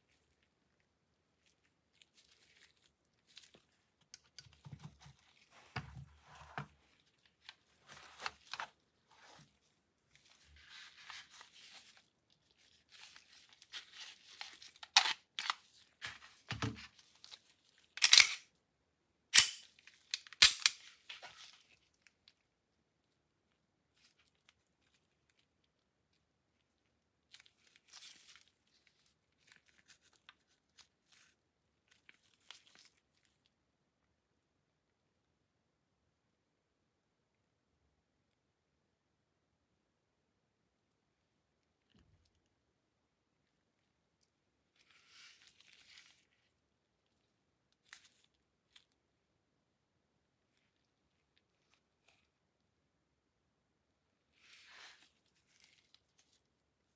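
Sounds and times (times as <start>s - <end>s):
gloved hands rustling: 0.0s - 18.4s, 44.7s - 47.2s, 54.2s - 56.9s.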